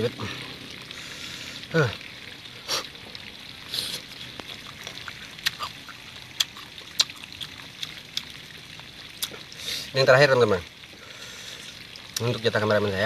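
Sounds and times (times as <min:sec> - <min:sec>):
hissing breath: 0:00.9 - 0:01.8, 0:02.6 - 0:02.9, 0:03.7 - 0:04.1, 0:09.6 - 0:10.0, 0:11.0 - 0:11.8
chewing crunchy fruit: 0:03.8 - 0:08.4.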